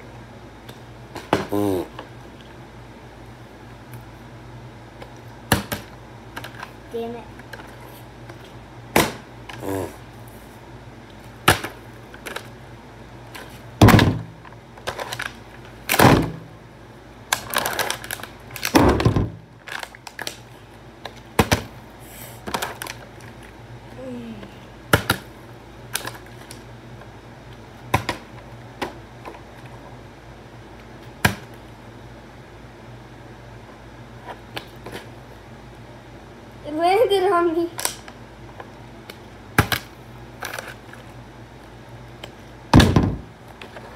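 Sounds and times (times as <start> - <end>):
plastic bottle hitting tile floor: 13.8 - 14.3, 42.8 - 43.2.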